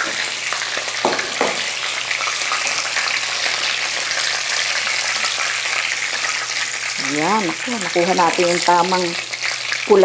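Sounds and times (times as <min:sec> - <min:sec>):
chicken sizzling in oil: 0:00.0 - 0:10.0
wooden spatula knocking pan: 0:01.0 - 0:01.7.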